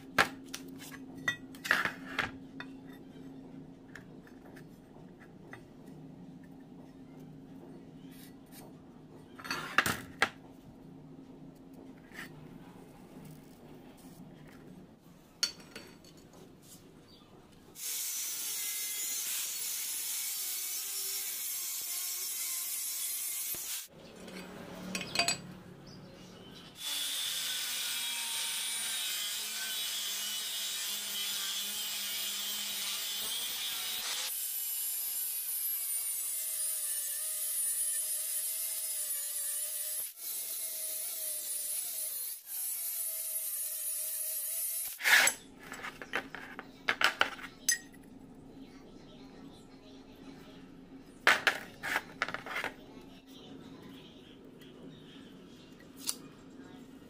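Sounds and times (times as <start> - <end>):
angle grinder cutting steel: 17.8 - 23.9, 26.8 - 45.3.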